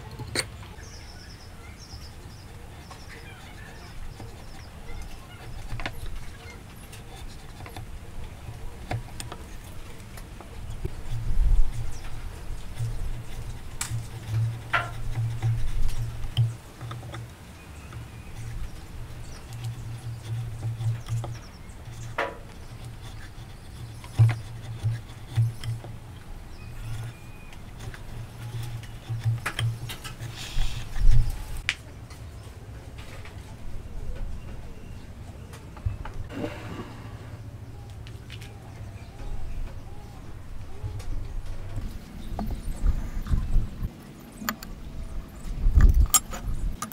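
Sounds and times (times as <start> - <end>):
chisel scraping wood: 0.0 - 31.6.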